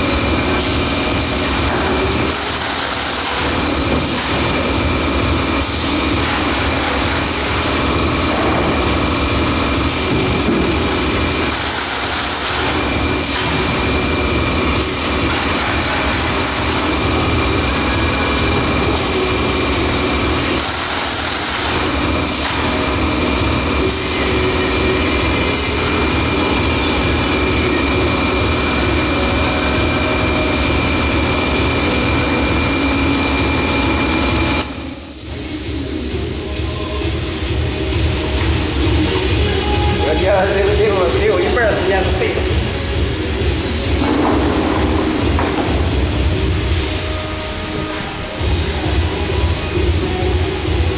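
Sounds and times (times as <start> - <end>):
machine hiss: 0.0 - 36.2
motor and conveyor hum: 0.0 - 50.9.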